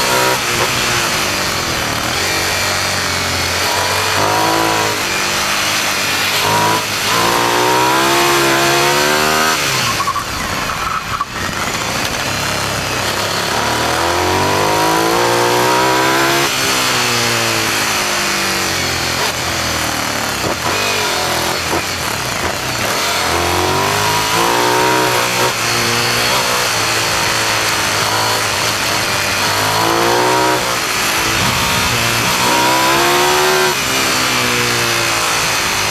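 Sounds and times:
motorcycle engine revving: 0.0 - 35.9
wind noise: 30.6 - 34.6.

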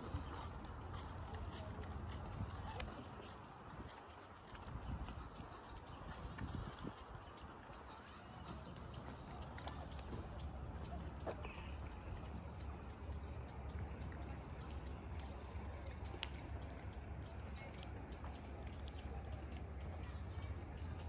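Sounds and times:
low steady rumble: 0.0 - 21.0.

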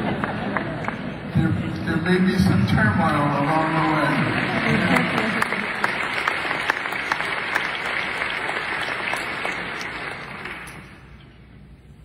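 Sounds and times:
audience applauding: 3.1 - 11.2.

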